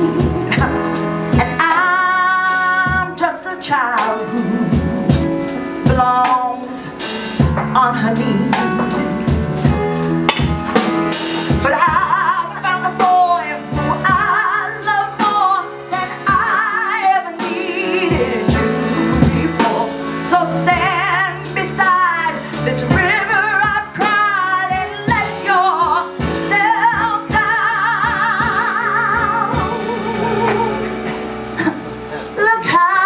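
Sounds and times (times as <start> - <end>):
woman singing: 0.0 - 10.2, 11.5 - 33.0
live band with drums: 0.0 - 32.8.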